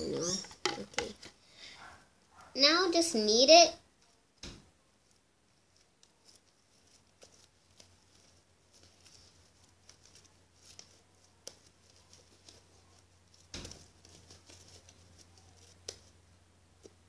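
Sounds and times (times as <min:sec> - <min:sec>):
sticky slime crackles: 0:05.0 - 0:16.2.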